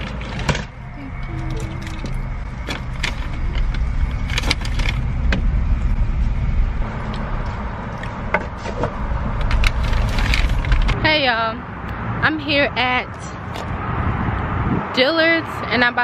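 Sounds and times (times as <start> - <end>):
car engine rumble: 0.0 - 16.0
paper bag crinkling: 9.4 - 11.0.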